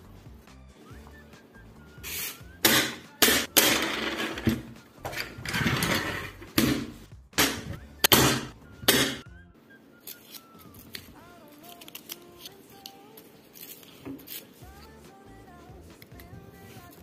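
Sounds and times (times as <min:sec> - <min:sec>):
pencils clicking and clattering: 0:03.6 - 0:06.5, 0:10.1 - 0:14.5.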